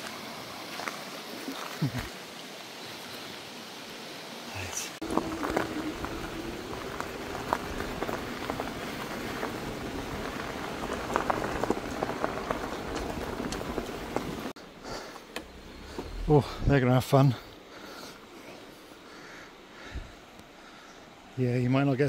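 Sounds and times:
bike tyres crunching on gravel: 5.0 - 16.8
small stones ticking: 5.1 - 14.5.

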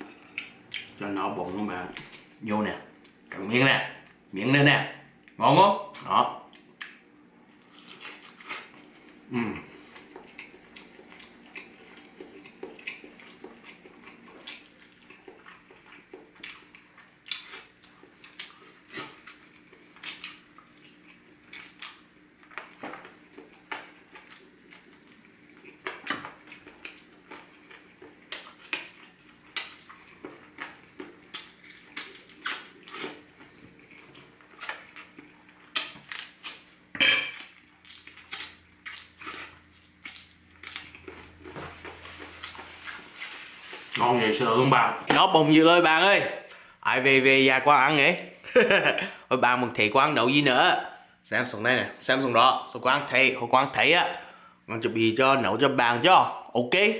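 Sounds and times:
person humming mmm: 9.3 - 9.8.

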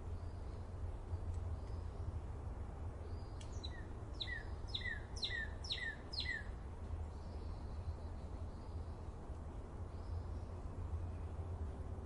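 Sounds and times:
songbird calling sharp notes: 3.1 - 6.6.

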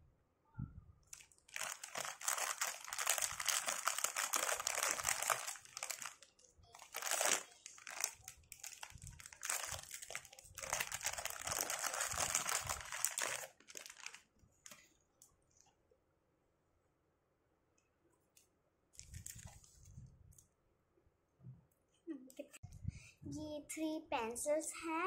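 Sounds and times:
plastic packaging crinkling: 1.1 - 14.8, 19.0 - 19.7.

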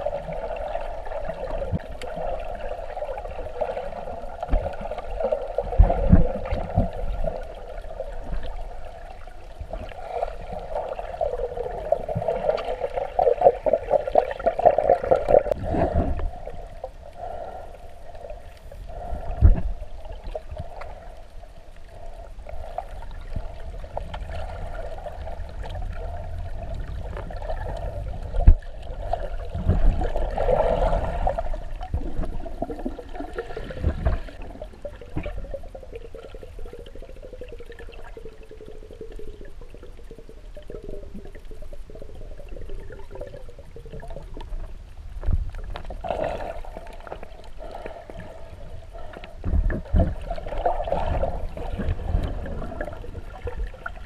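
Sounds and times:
muffled underwater wash: 0.0 - 54.0
low underwater thumps: 49.4 - 50.4.

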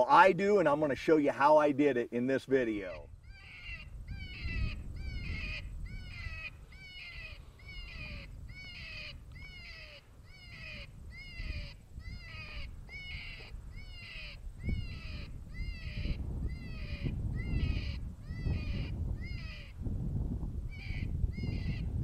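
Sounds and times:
predator call distress cry: 2.8 - 19.8
wind rumble on microphone: 2.8 - 22.0.

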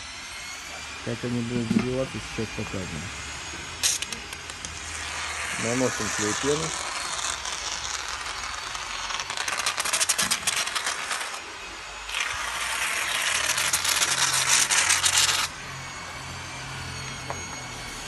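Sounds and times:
foam spraying crackling hiss: 5.6 - 11.4.

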